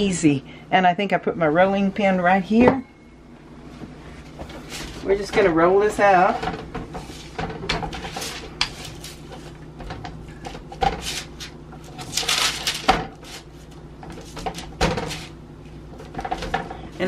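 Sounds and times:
parchment paper rustling: 0:04.4 - 0:05.3, 0:07.0 - 0:09.6, 0:10.5 - 0:15.4.

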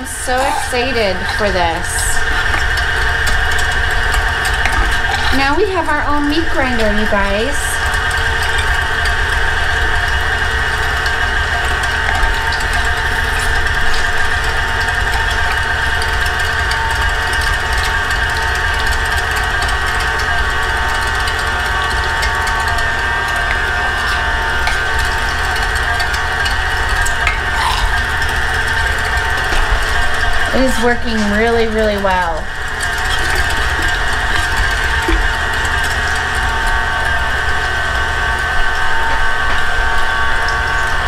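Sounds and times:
meat grinder grinding: 0:00.0 - 0:41.0
stand mixer motor whirring: 0:00.0 - 0:41.0.

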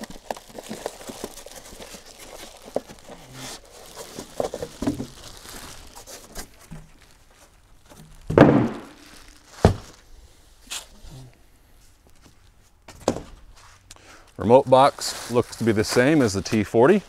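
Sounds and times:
plastic wrap crinkling: 0:00.0 - 0:10.1, 0:14.3 - 0:17.0
box thudding on a table: 0:08.3 - 0:09.0, 0:09.6 - 0:10.0.

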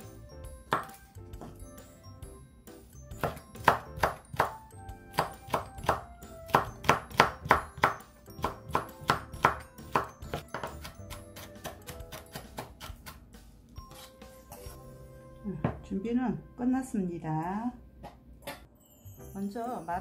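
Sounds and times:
background music: 0:00.0 - 0:20.0
knife chopping on wooden board: 0:00.7 - 0:01.6, 0:03.2 - 0:13.2.

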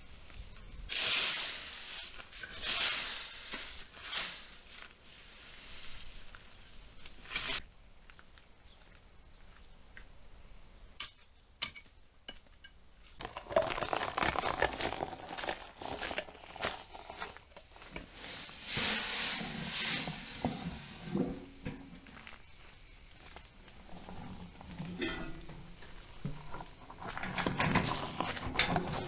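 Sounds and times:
rustling and scraping: 0:03.4 - 0:07.6, 0:13.0 - 0:29.0.

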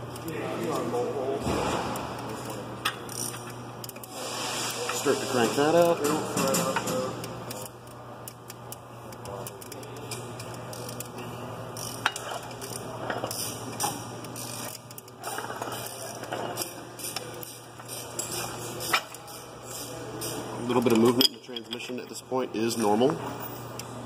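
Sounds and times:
steady low hum: 0:00.0 - 0:24.0
wrench clicking and rasping: 0:02.2 - 0:04.2, 0:05.7 - 0:21.9.

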